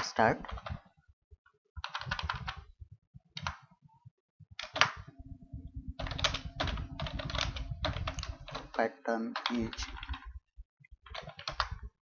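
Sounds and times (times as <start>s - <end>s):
computer keyboard typing: 0.1s - 0.8s, 1.8s - 2.7s, 3.4s - 3.7s, 4.6s - 5.2s, 6.0s - 10.4s, 11.0s - 11.9s.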